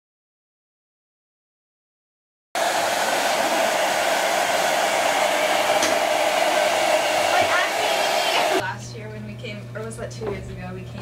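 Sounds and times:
hair dryer running: 2.6s - 8.6s.

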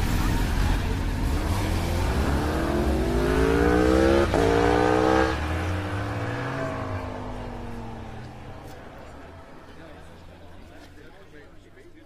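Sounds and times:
motorcycle engine accelerating: 0.9s - 10.5s.

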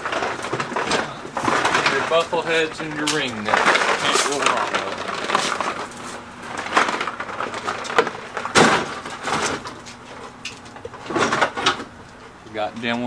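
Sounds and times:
loud clunk: 6.6s - 9.8s.

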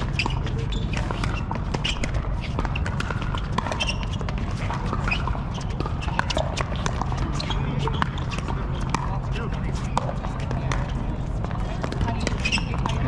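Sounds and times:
ball bouncing on court: 0.0s - 13.0s.

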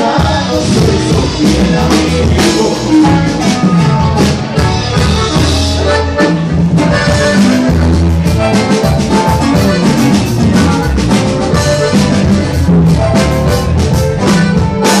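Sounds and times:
live band playing: 0.0s - 15.0s.

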